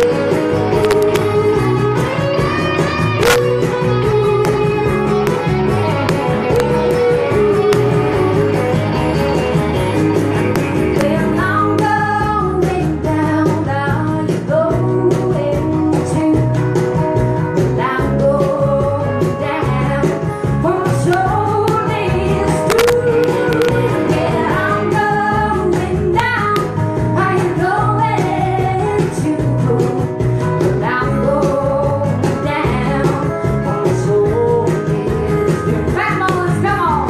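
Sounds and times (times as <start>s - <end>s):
woman singing: 0.0s - 5.3s, 10.8s - 16.9s, 17.6s - 37.0s
cajon drumming: 0.0s - 13.6s, 20.9s - 29.6s
acoustic guitar: 0.0s - 37.0s
electric bass: 0.0s - 37.0s.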